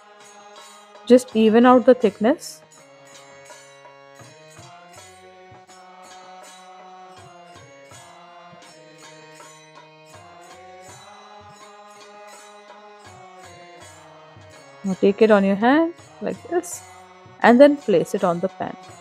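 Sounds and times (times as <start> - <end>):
chanted mantra over held tones: 10.2 - 14.0.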